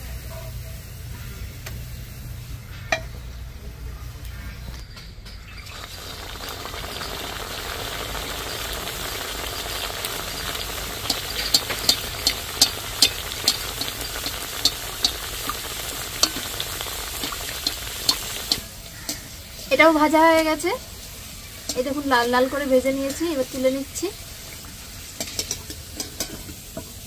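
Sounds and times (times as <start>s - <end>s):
pastry sizzling in hot oil: 5.5s - 27.0s
oil spitting pops: 5.7s - 19.3s.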